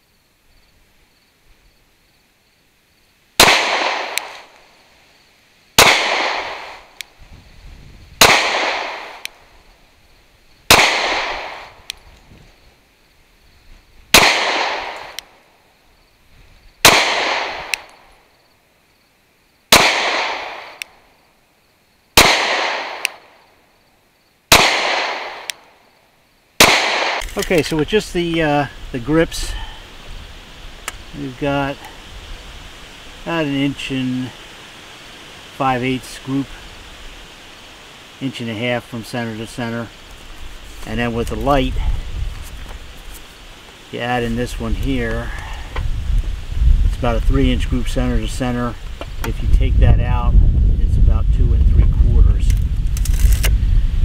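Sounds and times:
pistol shots with echo: 0:03.4 - 0:04.5, 0:05.8 - 0:06.8, 0:08.2 - 0:09.2, 0:10.7 - 0:11.8, 0:14.1 - 0:15.2, 0:16.8 - 0:17.9, 0:19.7 - 0:20.8, 0:22.2 - 0:23.3, 0:24.5 - 0:25.5, 0:26.6 - 0:27.2.

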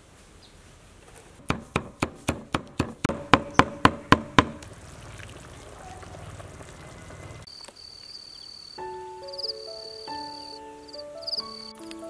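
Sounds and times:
cleaver chopping on cutting board: 0:01.4 - 0:04.6.

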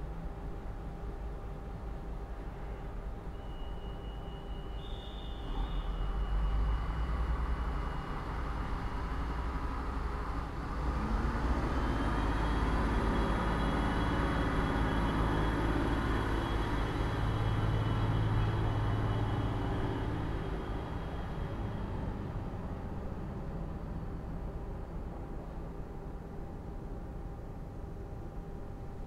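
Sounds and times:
factory hum: 0:00.0 - 0:29.0
passing vehicle with high whine: 0:00.0 - 0:29.0
distant traffic rumble: 0:06.1 - 0:26.6.

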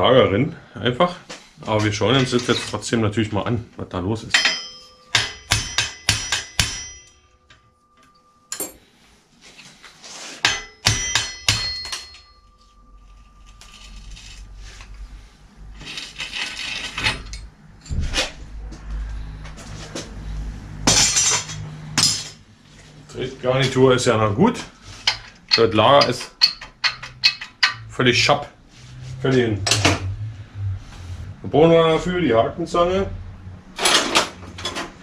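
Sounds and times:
metal tools clinking on bicycle parts: 0:04.3 - 0:08.9, 0:10.4 - 0:12.8, 0:25.0 - 0:27.9
low uneven rumble: 0:27.9 - 0:33.6.

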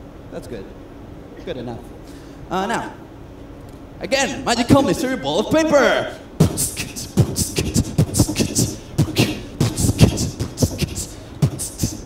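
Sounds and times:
beatboxing: 0:06.4 - 0:12.0.

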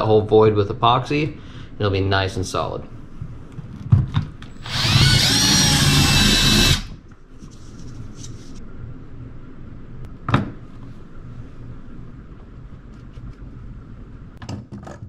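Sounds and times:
cordless drill whining: 0:04.5 - 0:07.0.

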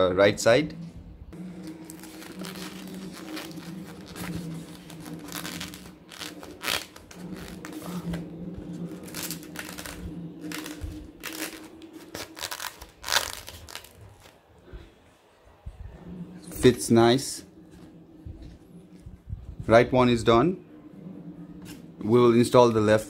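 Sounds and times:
steady low hum: 0:00.0 - 0:23.0
plastic scraping: 0:01.4 - 0:14.3
foam parts rubbing and creaking: 0:01.4 - 0:14.4.

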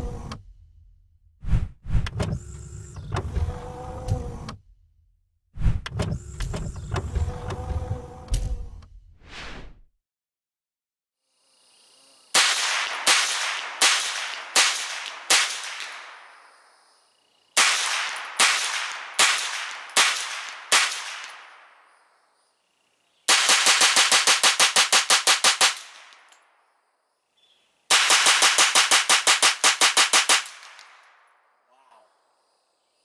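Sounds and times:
rifle gunshots: 0:12.4 - 0:16.4, 0:17.6 - 0:21.8, 0:23.3 - 0:26.3, 0:27.9 - 0:31.2.

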